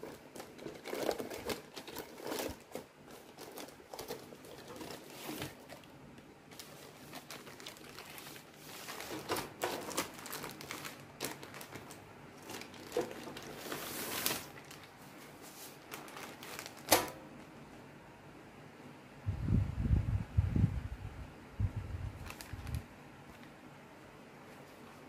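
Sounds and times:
plastic wrapping crinkling: 0.0s - 17.2s, 22.2s - 23.6s.

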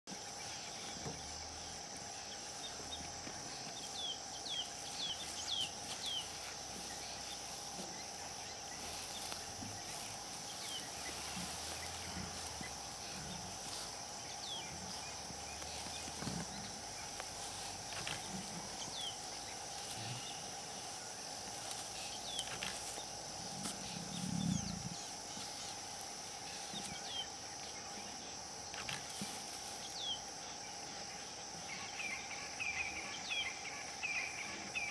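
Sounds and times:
insect chorus droning: 0.1s - 34.9s.

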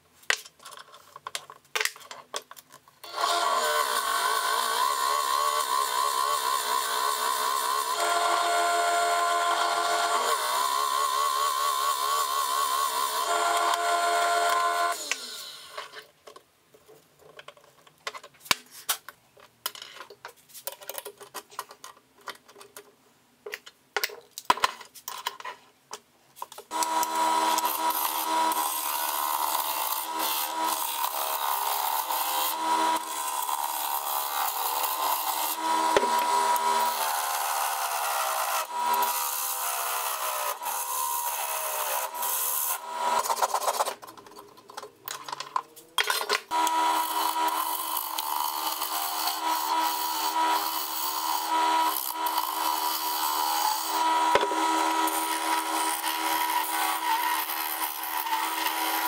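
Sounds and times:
lathe tool scraping wood: 3.1s - 16.0s, 26.7s - 44.2s, 46.5s - 59.0s
lathe machine tone: 26.7s - 43.2s.

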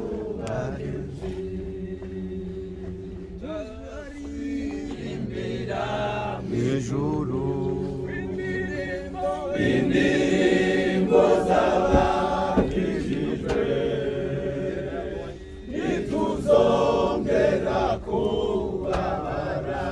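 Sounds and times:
group of voices chanting: 3.4s - 19.9s.

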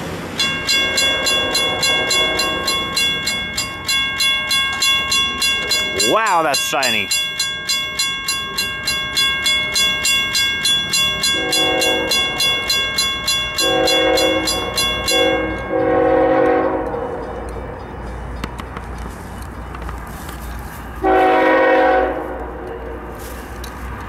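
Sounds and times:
crossing bell clanging: 0.0s - 24.0s
low train rumble: 0.0s - 24.0s
locomotive air horn blasts: 1.2s - 2.8s, 11.4s - 12.2s, 13.6s - 17.3s, 21.0s - 23.2s.

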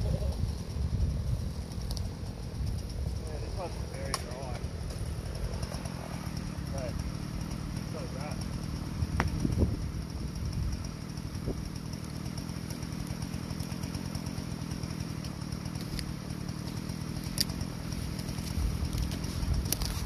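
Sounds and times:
engine idling: 0.0s - 20.0s
sharp tick: 1.8s - 2.1s.

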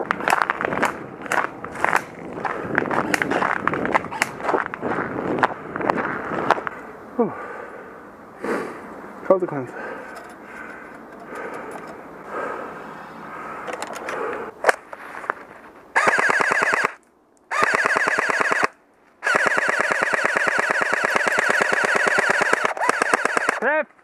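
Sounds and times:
airsoft gun firing full-auto: 16.0s - 23.6s.

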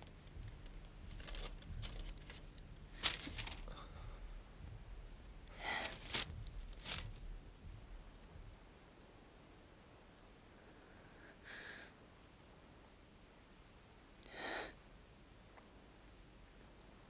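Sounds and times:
clothing and furniture rustling: 0.0s - 3.8s, 5.6s - 7.3s.

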